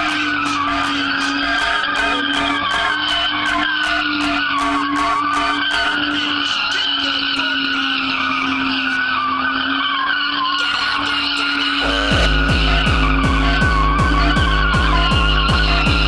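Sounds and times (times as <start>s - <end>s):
music with thumping beat: 0.0s - 6.4s, 11.8s - 16.0s
tyres squealing: 0.0s - 16.0s.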